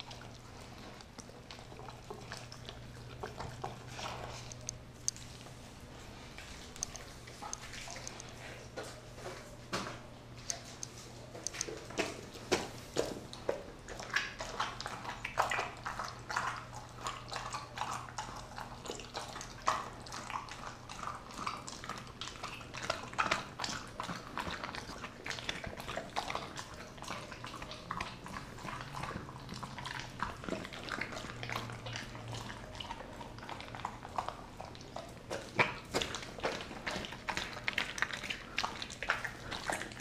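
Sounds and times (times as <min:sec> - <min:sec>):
dog chewing and tearing meat: 0:00.0 - 0:09.4, 0:10.4 - 0:40.0.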